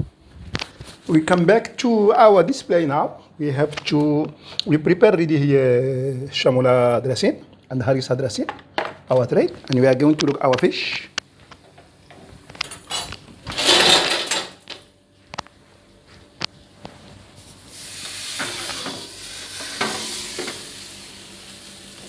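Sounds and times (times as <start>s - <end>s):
pans and utensils clattering: 12.7s - 14.7s
frying oil sizzling: 17.4s - 22.0s.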